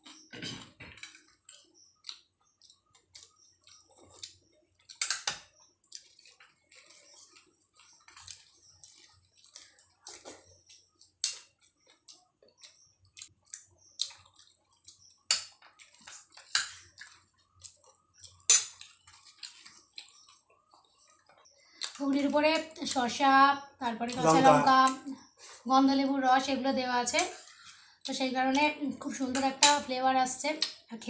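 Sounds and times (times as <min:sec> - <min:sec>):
wet chewing and lip-smacking: 0:01.2 - 0:22.0.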